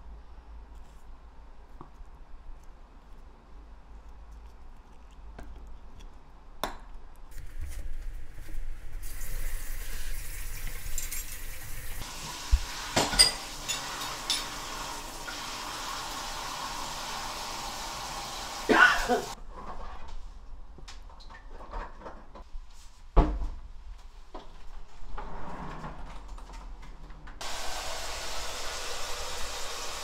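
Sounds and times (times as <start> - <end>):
running water: 9.0 - 19.4, 27.4 - 30.0
kitchenware clinking: 10.5 - 15.4.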